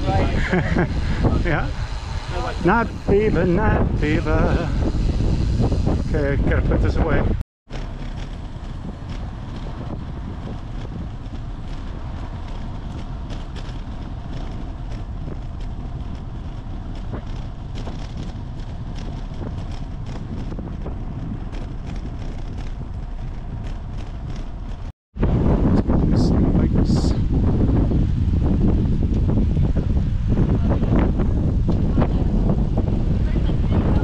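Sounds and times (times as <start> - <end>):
wind rushing over microphone: 0.0 - 34.0
tyre noise on concrete: 7.7 - 24.9.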